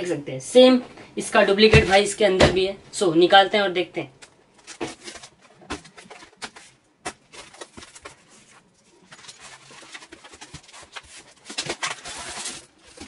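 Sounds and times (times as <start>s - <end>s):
packaging rustling: 4.6s - 13.0s.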